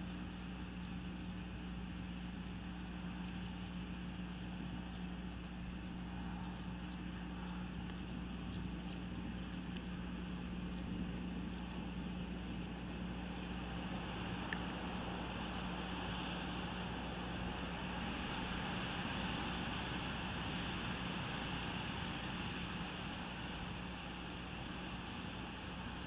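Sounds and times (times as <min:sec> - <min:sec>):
steady low hum with hiss: 0:00.0 - 0:26.0
faint tick: 0:14.5 - 0:14.7.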